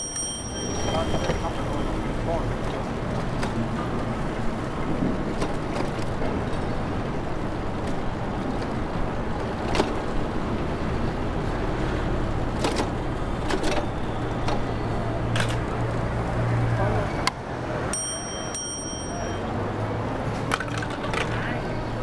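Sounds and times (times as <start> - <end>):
city traffic rumble: 0.0 - 22.0.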